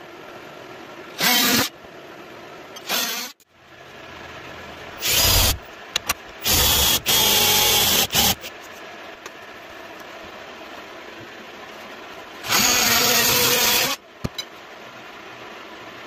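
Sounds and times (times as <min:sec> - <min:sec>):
cordless drill boring into wood: 0:01.2 - 0:01.7, 0:02.8 - 0:03.4, 0:05.0 - 0:05.6, 0:06.4 - 0:08.5, 0:12.4 - 0:14.0.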